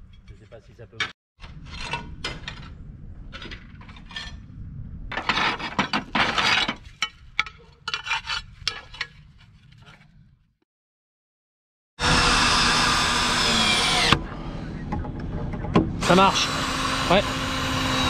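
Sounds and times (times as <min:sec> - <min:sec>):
slates scraping off roof: 0:05.1 - 0:07.0.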